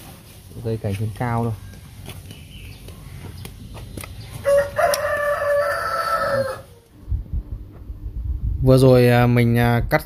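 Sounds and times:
rooster crowing: 0:04.4 - 0:06.9.

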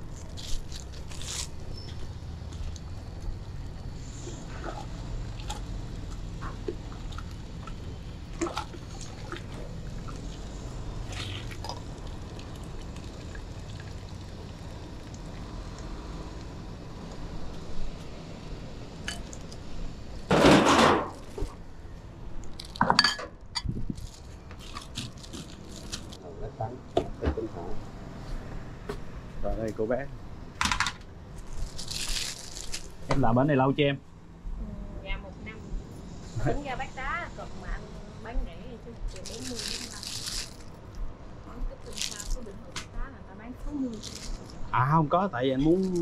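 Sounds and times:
low background hum: 0:00.0 - 0:46.0
broth pouring: 0:03.9 - 0:16.5.

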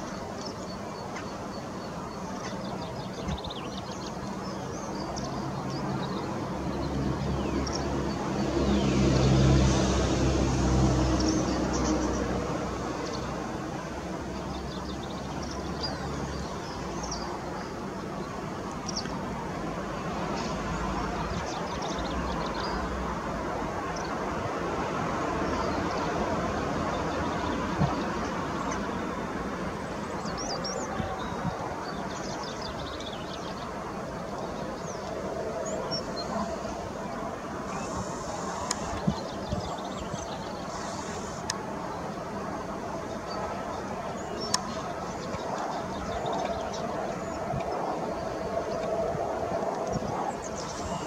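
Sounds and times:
small birds chirping: 0:00.0 - 0:09.3, 0:14.2 - 0:19.4, 0:25.4 - 0:51.0
distant traffic hum: 0:00.0 - 0:51.0.

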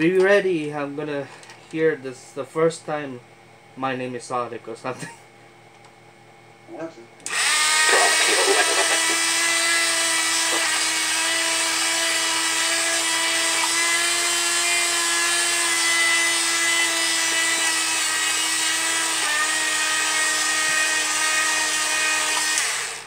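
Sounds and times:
toy robot whirring: 0:07.3 - 0:11.4.

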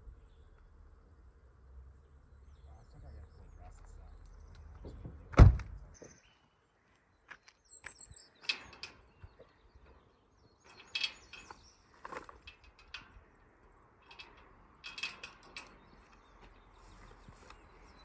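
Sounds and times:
car door shutting: 0:04.8 - 0:05.8
light clicks and rattles: 0:07.4 - 0:18.0.

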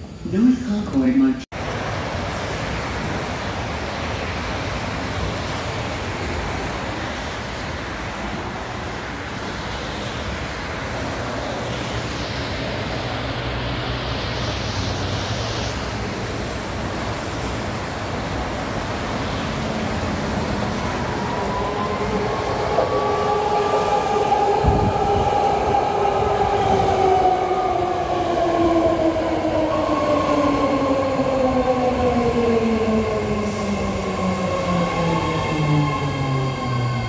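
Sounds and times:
approaching train whine: 0:00.0 - 0:37.0
rain: 0:01.6 - 0:23.7
highway traffic on wet pavement: 0:01.6 - 0:37.0.

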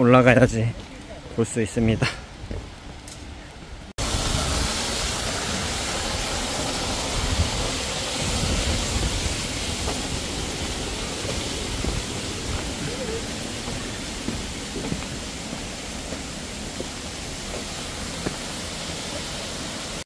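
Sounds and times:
stream water rushing: 0:04.0 - 0:20.0.

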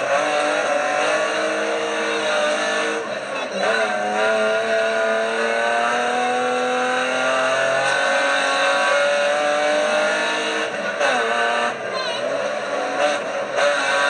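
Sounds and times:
car engine pulling hard: 0:00.0 - 0:14.0.

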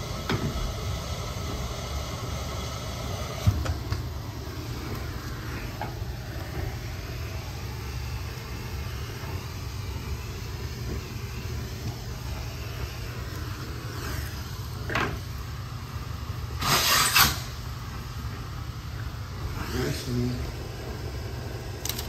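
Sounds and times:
vacuum cleaner drone: 0:00.0 - 0:22.0
rush of sucking air: 0:04.2 - 0:15.6, 0:16.6 - 0:17.6, 0:19.3 - 0:21.8.

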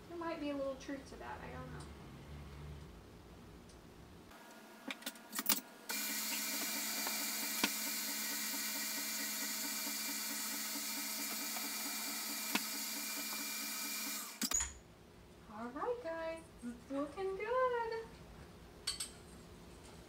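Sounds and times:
stand mixer motor running: 0:05.9 - 0:14.4.

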